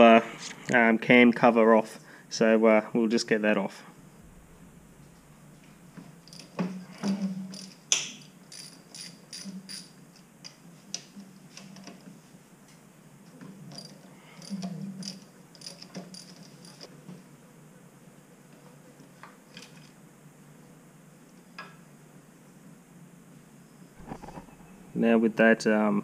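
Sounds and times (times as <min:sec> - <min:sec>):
metal clinks and knocks: 0:06.0 - 0:10.0.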